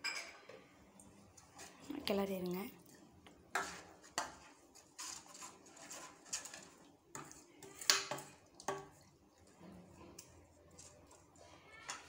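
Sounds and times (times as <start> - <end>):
spoon scraping metal pan: 3.5 - 10.4.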